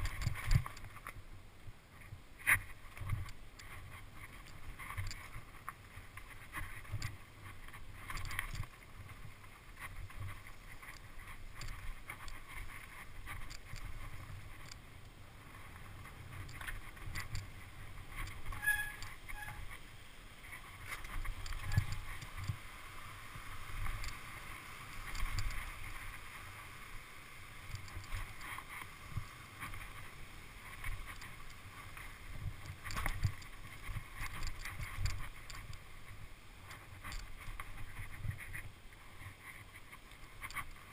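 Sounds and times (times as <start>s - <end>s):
bike rattling over rocks: 0.0s - 1.2s, 2.4s - 14.8s, 15.4s - 19.8s, 20.5s - 22.6s, 27.6s - 38.7s
wind rumbling on microphone: 0.0s - 40.9s
high squeak: 18.5s - 19.7s.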